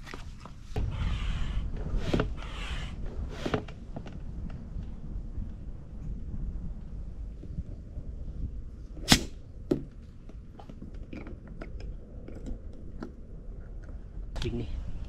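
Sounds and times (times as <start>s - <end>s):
wind on microphone: 0.7s - 15.0s.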